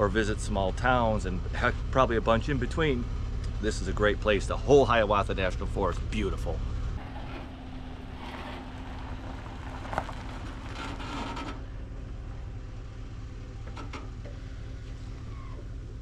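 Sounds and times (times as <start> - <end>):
vehicle engine rumbling: 0.0 - 16.0
knocks and rattles: 7.0 - 11.8, 13.6 - 14.6.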